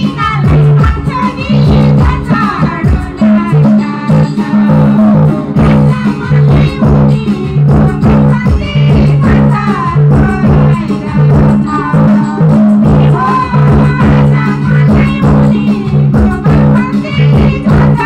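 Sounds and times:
band playing: 0:00.0 - 0:18.0
drum beat: 0:00.0 - 0:18.0
person singing: 0:00.0 - 0:18.0
heavy bass line: 0:04.6 - 0:18.0.

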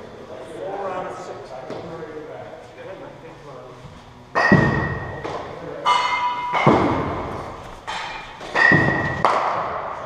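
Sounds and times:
cricket ball striking bat: 0:08.4 - 0:09.8.

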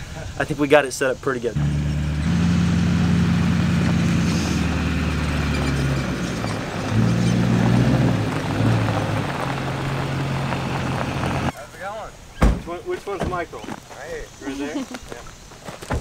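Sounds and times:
diesel pickup driving on gravel: 0:00.7 - 0:12.0.

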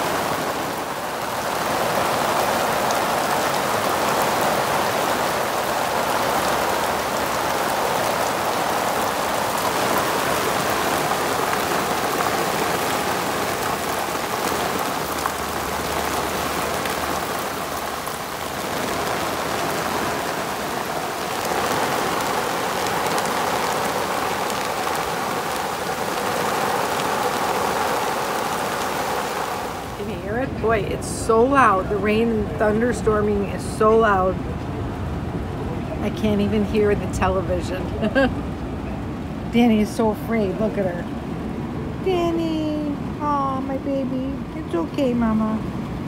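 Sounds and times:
heavy rain pouring: 0:00.0 - 0:46.0.

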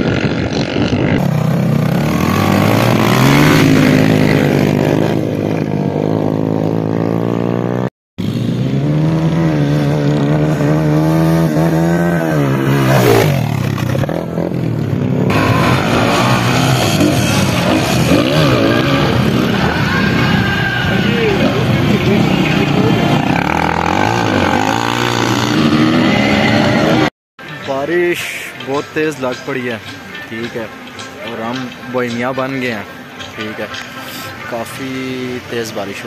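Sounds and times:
dirt bike engines revving: 0:00.0 - 0:36.0.

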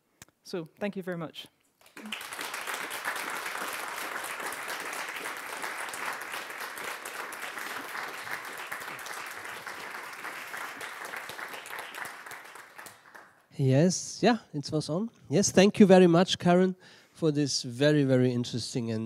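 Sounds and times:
audience applauding: 0:01.8 - 0:13.4.

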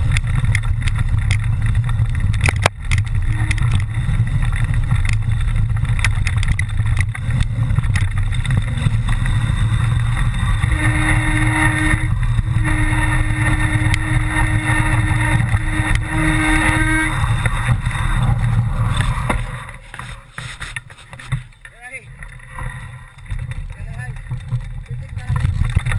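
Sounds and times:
wind buffeting microphone: 0:00.0 - 0:19.9
mountain bike rattling: 0:00.0 - 0:25.9
steady whine: 0:00.0 - 0:25.9.

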